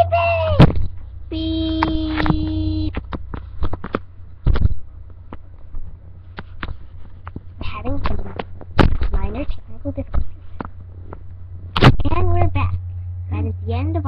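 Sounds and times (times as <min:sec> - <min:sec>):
low electrical hum: 0:00.0 - 0:14.0
person speaking: 0:01.3 - 0:03.0, 0:07.6 - 0:10.4, 0:11.8 - 0:14.0.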